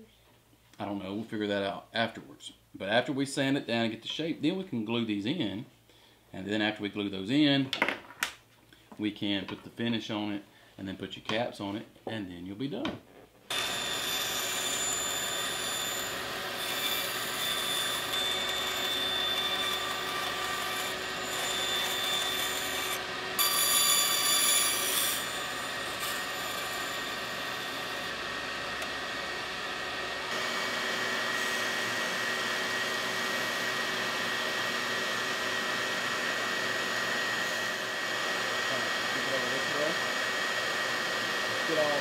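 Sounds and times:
bandsaw cutting wood: 0:13.5 - 0:42.0
belt sander high whine: 0:13.5 - 0:42.0.

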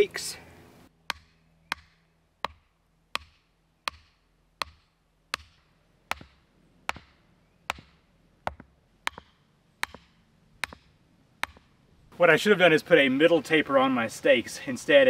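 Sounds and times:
hammer striking wooden stake: 0:01.0 - 0:11.8.

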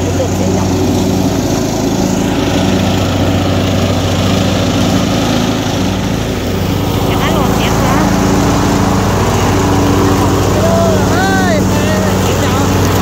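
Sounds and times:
lawn mower cutting grass: 0:00.0 - 0:13.0.

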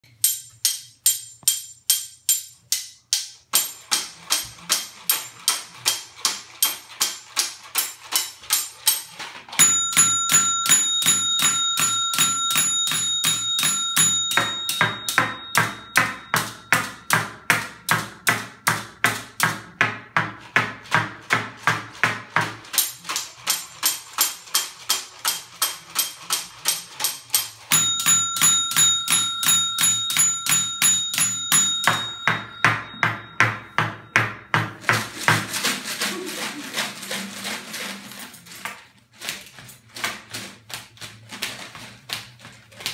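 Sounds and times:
sustained ringing tones: 0:09.6 - 0:17.2, 0:27.7 - 0:34.5.

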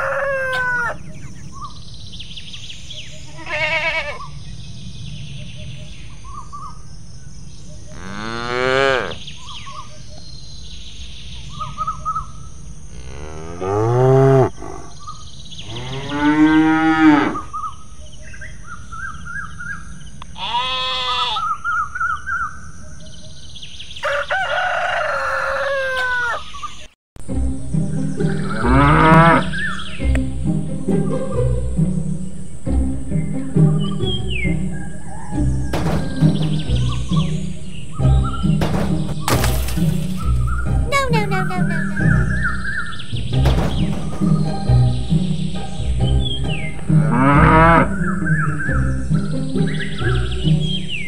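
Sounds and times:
rooster crowing: 0:00.0 - 0:01.0, 0:24.0 - 0:26.5
bird chirps: 0:00.1 - 0:12.7, 0:13.6 - 0:20.3, 0:27.8 - 0:30.2, 0:33.1 - 0:39.4, 0:40.2 - 0:51.0
cattle mooing: 0:07.9 - 0:09.2, 0:12.9 - 0:15.0, 0:28.5 - 0:29.5, 0:47.0 - 0:48.0.

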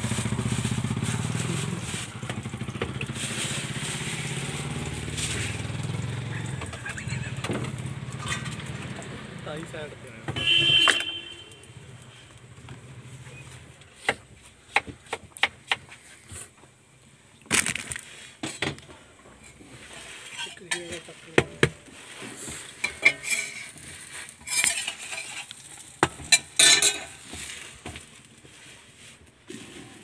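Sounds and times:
buns and patties sizzling: 0:00.0 - 0:10.2, 0:17.1 - 0:30.0
spatula clinking and scraping on griddle: 0:19.4 - 0:28.2.

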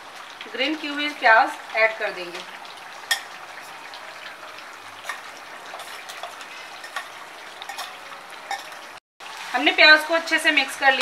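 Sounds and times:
food sizzling in a pan: 0:00.0 - 0:11.0
metal spoon clicking on pan: 0:06.1 - 0:07.9.

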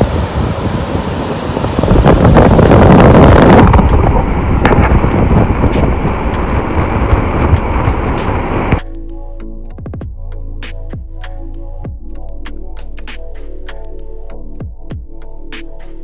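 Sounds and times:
surf washing across rocks: 0:00.0 - 0:08.8
wind buffeting microphone: 0:00.0 - 0:08.8.

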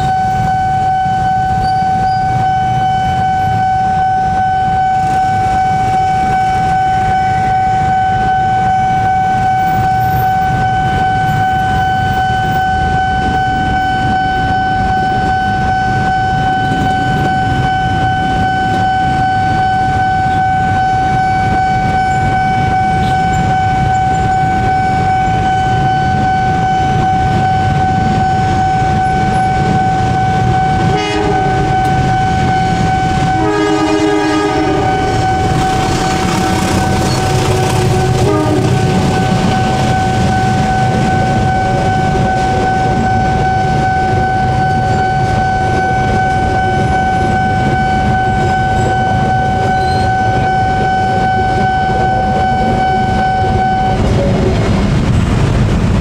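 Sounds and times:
level-crossing warning siren: 0:00.0 - 0:56.0
motorcycle traffic rumble: 0:00.0 - 0:56.0
horn: 0:18.7 - 0:54.2.

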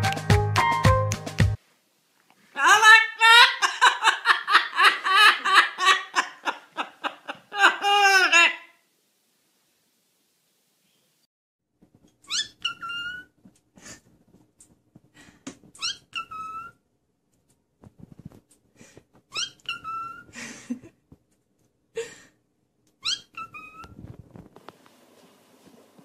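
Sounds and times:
cockatiel whistling calls: 0:12.3 - 0:13.3, 0:15.8 - 0:16.7, 0:19.3 - 0:20.2, 0:23.0 - 0:23.9
small clicks and rustles: 0:17.3 - 0:19.3, 0:23.8 - 0:26.0.

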